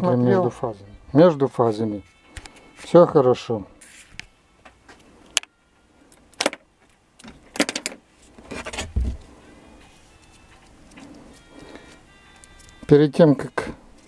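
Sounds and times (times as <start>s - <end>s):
clicks and rattles: 7.2s - 8.0s
rustling and knocking: 7.2s - 9.3s.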